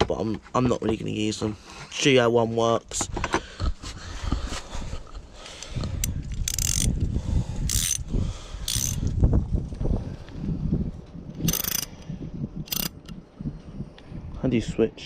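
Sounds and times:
ratchet spanner clicking: 0:05.6 - 0:07.0, 0:07.6 - 0:09.1, 0:11.4 - 0:12.0, 0:12.7 - 0:13.1.

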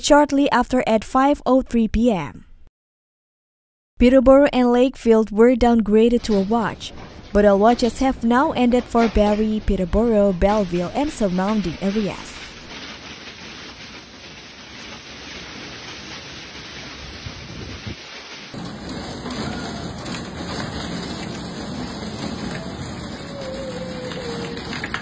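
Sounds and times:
hail striking a wooden deck: 0:09.9 - 0:25.0
hail and heavy rain pelting down: 0:10.6 - 0:25.0.

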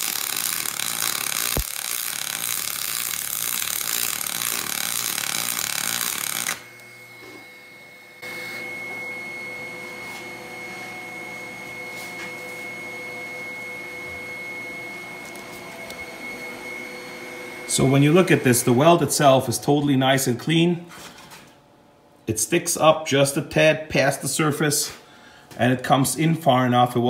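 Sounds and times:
arc welding crackling hiss: 0:00.0 - 0:06.6
welding machine humming: 0:00.0 - 0:08.6.

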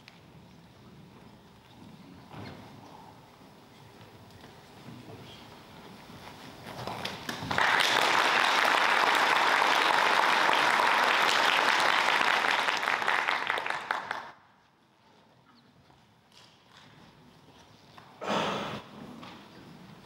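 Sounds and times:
audience applauding: 0:07.5 - 0:14.4.

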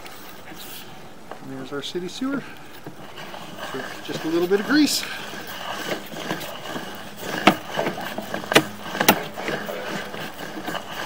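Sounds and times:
cable rushing through pipe: 0:03.0 - 0:11.0.

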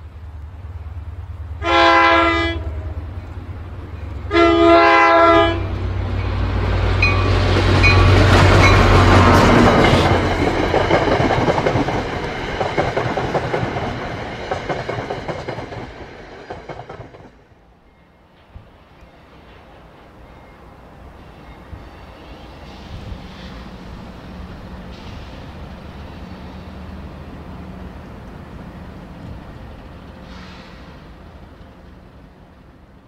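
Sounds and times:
train engine rumble: 0:00.0 - 0:33.0
locomotive horn blast: 0:01.6 - 0:03.0, 0:04.3 - 0:05.8.

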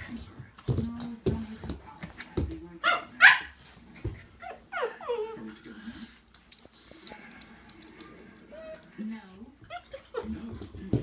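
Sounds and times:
dog whining: 0:04.4 - 0:05.6, 0:08.5 - 0:10.4.

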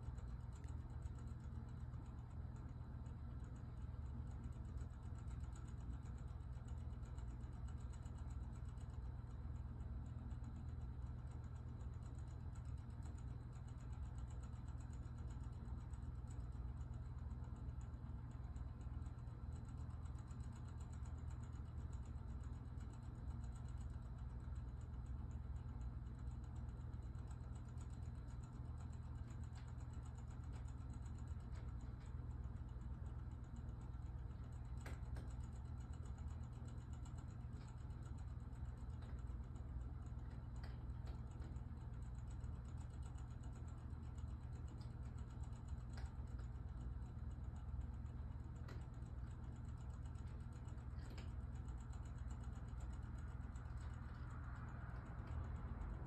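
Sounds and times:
low room hum: 0:00.0 - 0:56.0.

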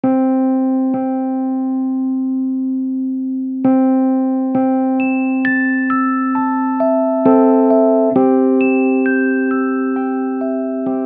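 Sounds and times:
electric piano notes: 0:05.8 - 0:11.0.

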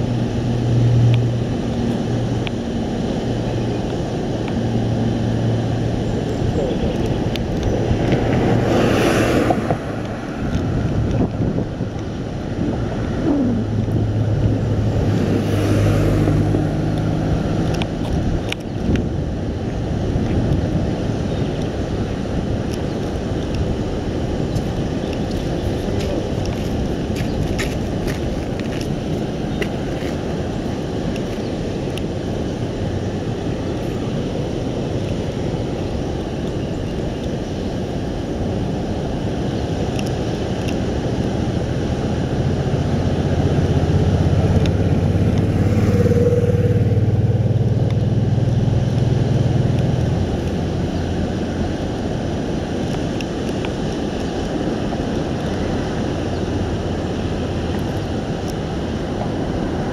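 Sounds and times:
low rumbling background: 0:00.0 - 0:36.0
motor passing: 0:43.8 - 0:48.7.

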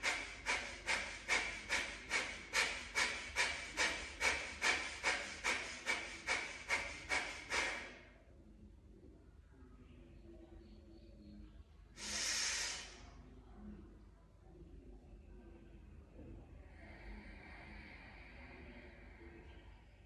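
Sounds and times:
forceful nasal exhalations: 0:00.0 - 0:08.0, 0:12.0 - 0:13.1.

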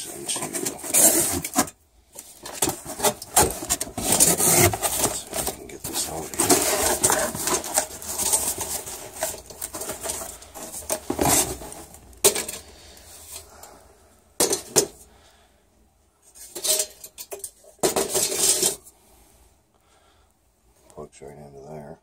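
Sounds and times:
cardboard rustling: 0:00.0 - 0:13.7.

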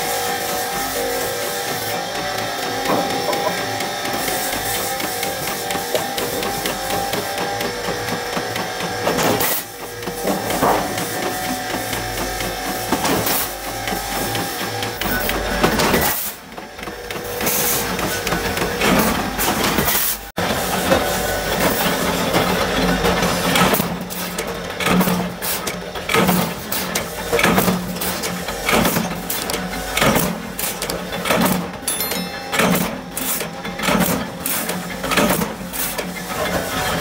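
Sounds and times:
machine motor hum: 0:00.0 - 0:16.0.

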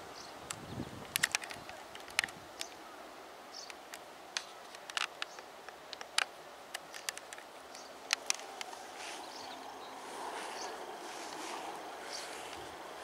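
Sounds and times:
faint outdoor background: 0:00.0 - 0:13.0
sharp clicks and light snaps: 0:00.5 - 0:02.8, 0:03.6 - 0:08.8.

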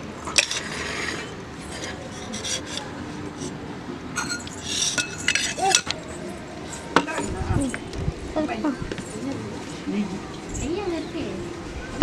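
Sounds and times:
metal kitchenware clinking: 0:04.2 - 0:07.4.

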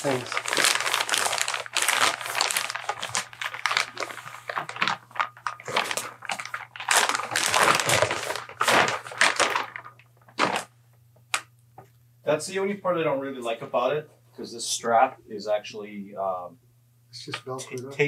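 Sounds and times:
plastic bag crinkling: 0:00.0 - 0:10.7.

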